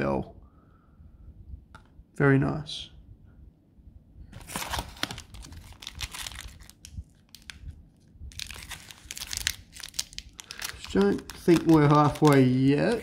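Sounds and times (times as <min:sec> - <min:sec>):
card pack wrappers crinkling: 0:04.4 - 0:07.7, 0:08.3 - 0:13.0.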